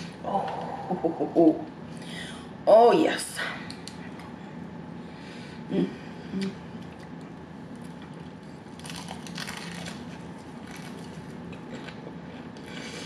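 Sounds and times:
fried chicken crunching: 7.8s - 12.1s.

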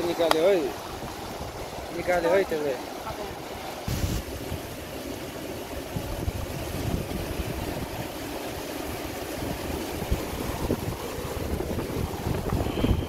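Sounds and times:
stream rushing over rocks: 0.0s - 13.0s
wind on microphone: 5.6s - 13.0s.

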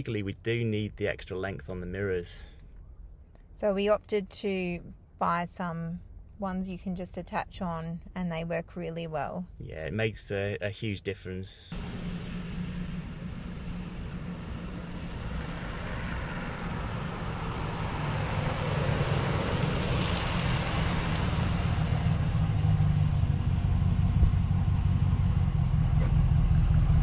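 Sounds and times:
pickup truck engine: 11.7s - 27.0s.

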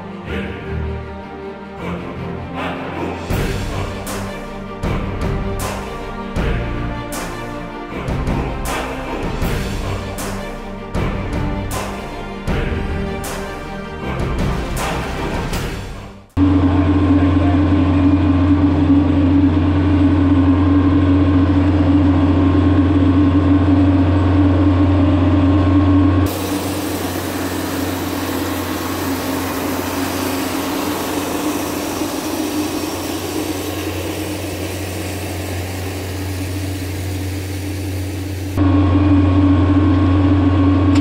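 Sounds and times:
tractor diesel engine under load: 16.4s - 41.0s
broad hiss: 26.3s - 38.6s.

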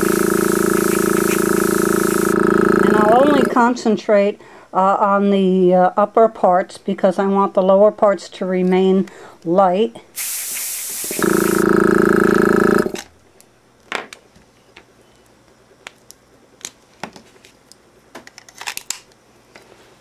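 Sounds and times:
airbrush hissing: 0.0s - 3.6s, 10.2s - 11.8s
air compressor motor humming: 0.0s - 3.7s, 10.2s - 13.1s.

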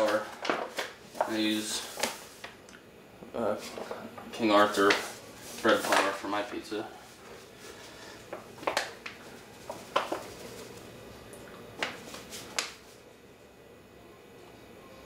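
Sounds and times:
paper bag crinkling: 0.0s - 2.5s, 3.6s - 6.4s, 7.3s - 10.9s.

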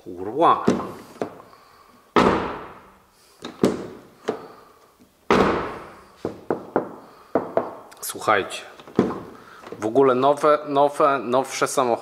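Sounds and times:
car door slamming: 2.2s - 2.9s, 5.3s - 6.0s.

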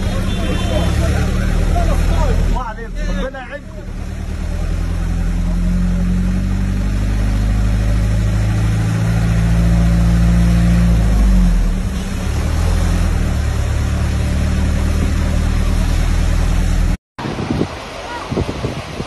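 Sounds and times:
large vehicle engine droning: 0.0s - 17.0s.

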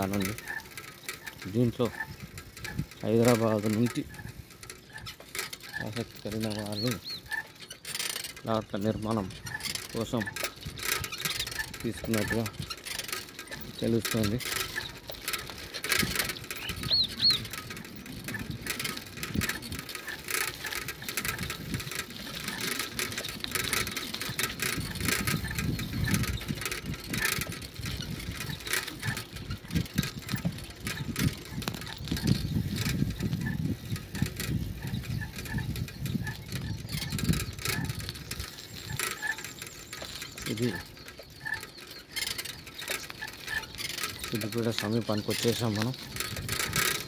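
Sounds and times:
vehicle rattling and clicking: 0.0s - 47.0s.

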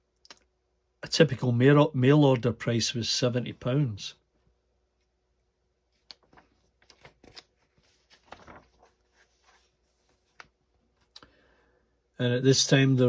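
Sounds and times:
magazine page turning: 5.9s - 10.6s.

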